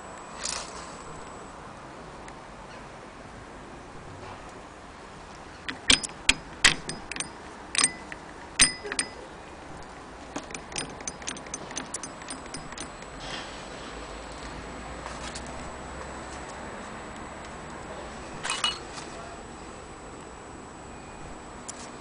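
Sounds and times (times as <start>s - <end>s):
sewing machine crank clacking: 5.7s - 9.2s, 10.4s - 13.1s.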